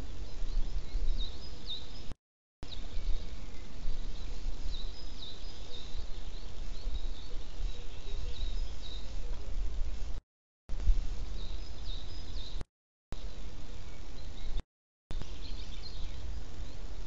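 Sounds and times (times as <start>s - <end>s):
low wind rumble: 0.0s - 12.6s
songbirds chirping: 0.0s - 17.0s.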